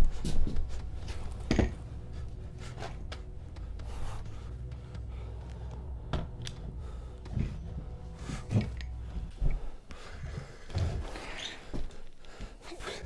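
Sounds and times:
low steady rumble: 0.7 - 9.8.

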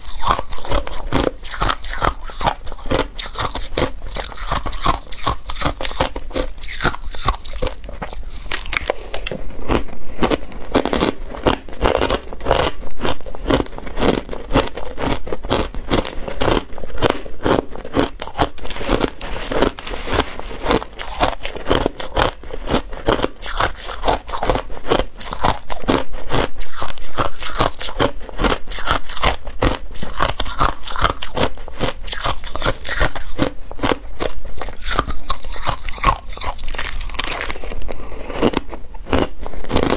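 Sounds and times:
ice crunched between teeth: 0.0 - 39.9
metal spoon scraping ice: 17.7 - 22.4, 34.6 - 38.6.

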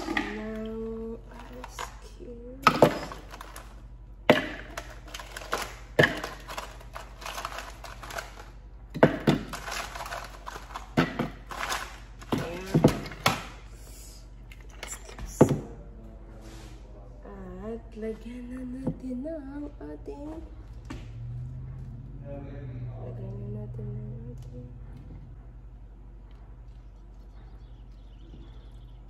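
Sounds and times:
ice cubes clattering into blender: 2.7 - 13.4.

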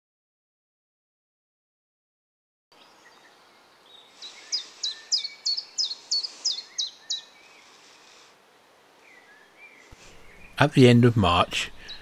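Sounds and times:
faint outdoor background: 2.7 - 12.0.

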